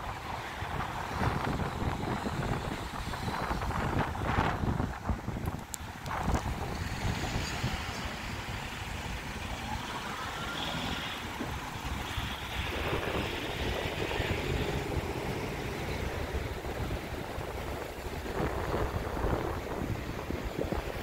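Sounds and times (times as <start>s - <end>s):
wind rumble on microphone: 0.0s - 21.0s
cars driving past: 6.0s - 21.0s.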